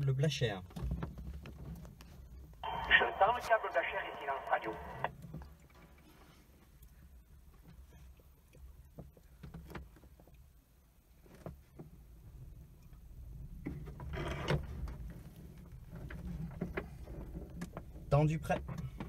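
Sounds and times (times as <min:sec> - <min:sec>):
cockpit clicks and creaks: 0:13.6 - 0:15.2.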